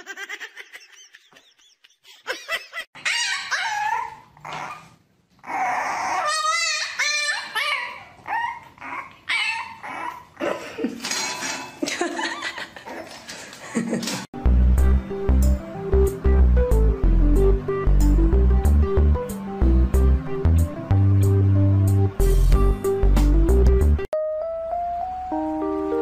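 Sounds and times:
puppy whining and yipping: 3.0 - 10.4.

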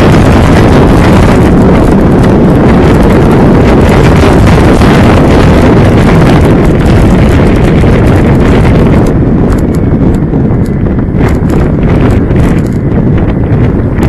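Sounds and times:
road noise rumble: 0.0 - 14.0
sharp crackles: 0.0 - 14.0
wind buffeting microphone: 0.0 - 14.0.

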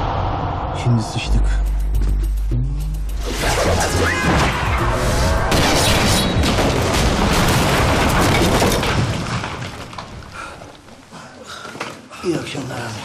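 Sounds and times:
explosion boom with crackling: 5.4 - 10.4.

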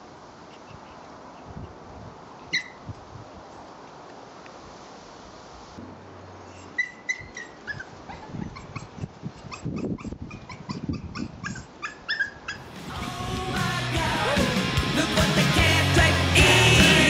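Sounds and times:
puppy whimpering and yipping: 2.5 - 2.8, 6.6 - 12.6.

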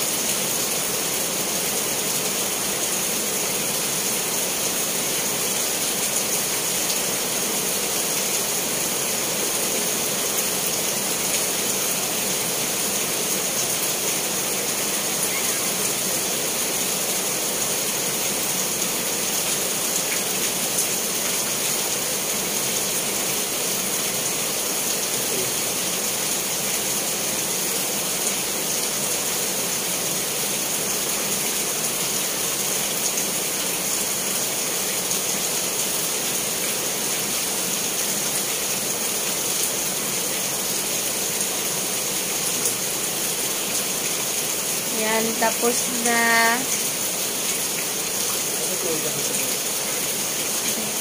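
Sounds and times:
heavy rain falling: 0.0 - 51.0.

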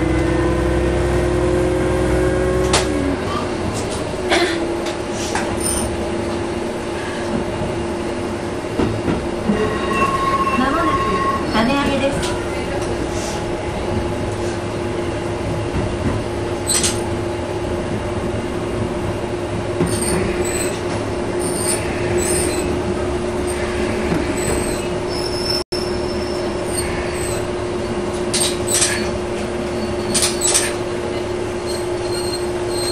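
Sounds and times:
diesel engine drone: 0.0 - 9.6, 11.6 - 32.9
wheel and rail rumble: 0.0 - 32.9
high-pitched wheel squeals: 9.5 - 12.5, 19.8 - 20.8, 21.4 - 22.8, 23.4 - 30.8, 31.6 - 32.9.

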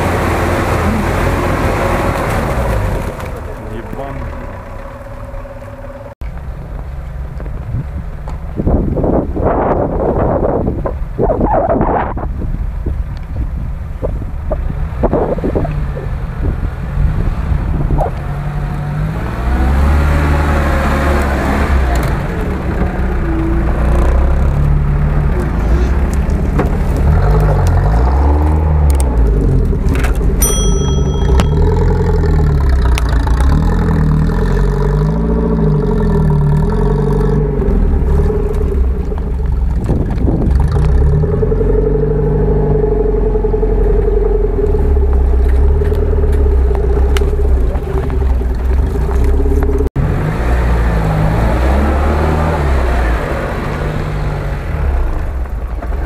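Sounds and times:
off-road vehicle engine revving: 0.0 - 6.2, 13.9 - 56.0
short bell-like ding: 30.4 - 32.1.

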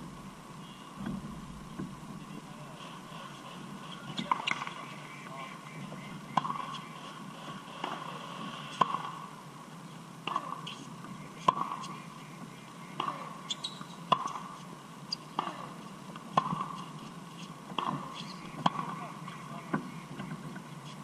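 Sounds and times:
tennis balls struck by rackets: 4.1 - 4.9, 6.3 - 6.9, 8.7 - 9.2, 10.2 - 10.8, 11.4 - 12.0, 12.9 - 14.7, 15.3 - 20.3.

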